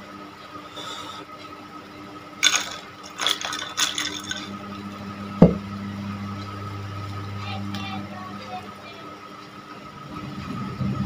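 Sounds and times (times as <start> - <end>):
liquid splashing into a glass: 2.4 - 4.6
sharp thump: 5.4 - 5.6.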